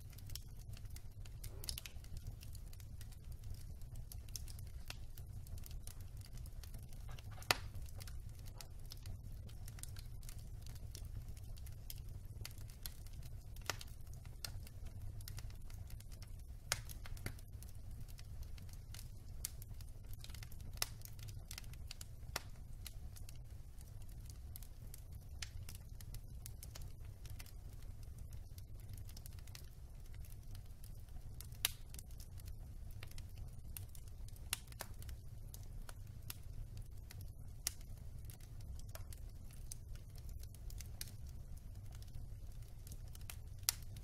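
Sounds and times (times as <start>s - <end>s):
fire crackling and popping: 0.0s - 44.0s
low fire rumble: 0.0s - 44.0s.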